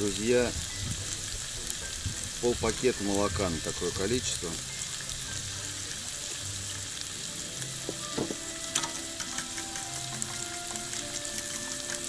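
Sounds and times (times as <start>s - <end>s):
vegetables sizzling in a frying pan: 0.0s - 12.0s
utensil clicking against metal pan: 8.7s - 12.0s.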